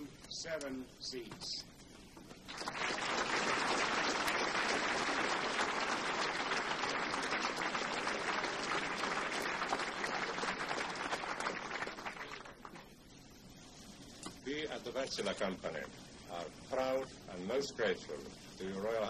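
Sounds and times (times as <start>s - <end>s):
audience applauding: 2.5s - 12.9s.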